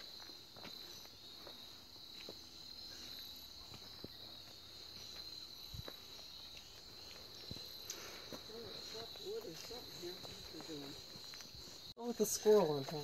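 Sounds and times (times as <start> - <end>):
footsteps on forest trail: 0.0 - 13.0
high-pitched insect chorus: 0.0 - 13.0.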